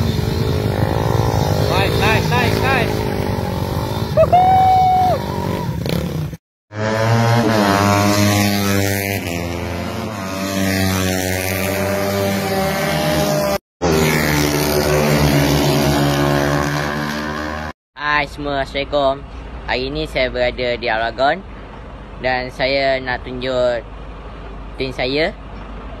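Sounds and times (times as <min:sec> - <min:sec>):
racing motorcycle engines revving: 0:00.0 - 0:17.8.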